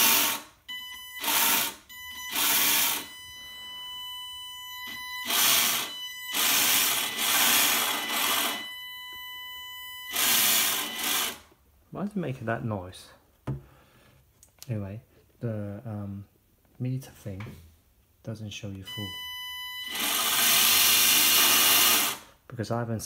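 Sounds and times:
electric motor whirring: 0:00.0 - 0:00.5, 0:01.2 - 0:03.1, 0:05.2 - 0:08.6, 0:10.1 - 0:11.4, 0:19.9 - 0:22.2.

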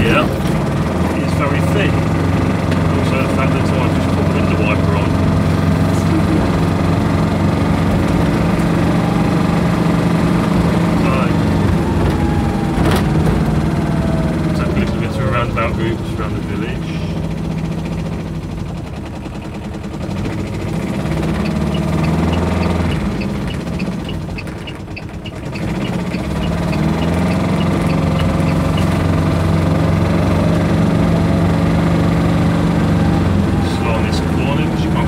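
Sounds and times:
diesel engine running: 0:00.0 - 0:35.0
rapid regular ticking: 0:17.7 - 0:29.2.

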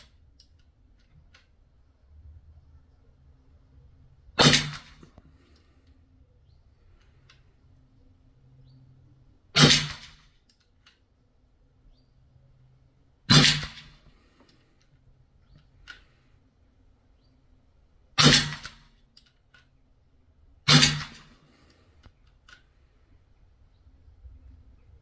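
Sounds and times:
air rifle shots: 0:04.4 - 0:05.2, 0:09.5 - 0:10.3, 0:13.3 - 0:14.1, 0:18.2 - 0:18.9, 0:20.6 - 0:21.5.

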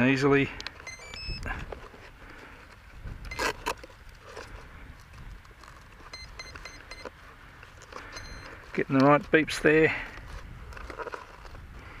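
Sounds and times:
short high electronic beeps: 0:00.8 - 0:01.6, 0:06.1 - 0:07.1, 0:08.2 - 0:08.5.

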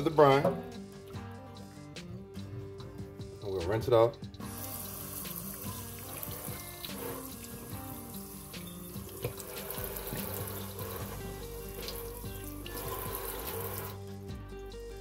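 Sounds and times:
faucet running into steel sink: 0:04.5 - 0:14.0.

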